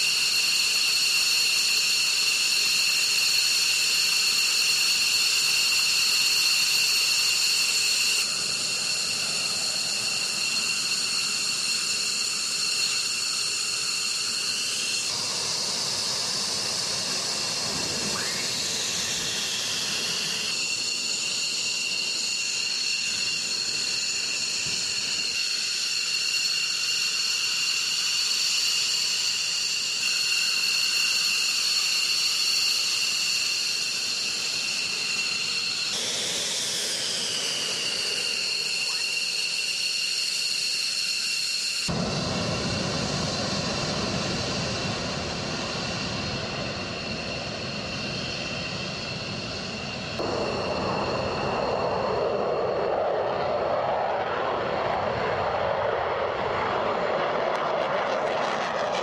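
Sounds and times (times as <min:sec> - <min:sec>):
jet engines whining: 0:00.0 - 0:59.0.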